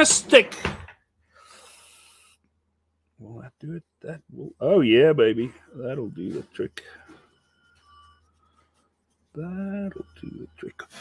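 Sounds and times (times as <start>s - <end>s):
faint eraser rubbing on metal: 3.3s - 11.0s.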